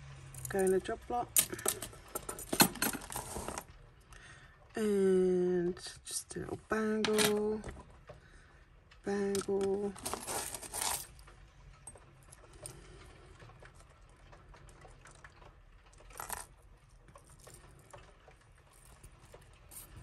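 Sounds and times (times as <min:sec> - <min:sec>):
jewellery beads clinking: 0:00.4 - 0:03.6, 0:09.3 - 0:11.2, 0:16.1 - 0:16.5, 0:19.7 - 0:20.0
jewellery jingle: 0:00.4 - 0:03.6, 0:09.3 - 0:11.2.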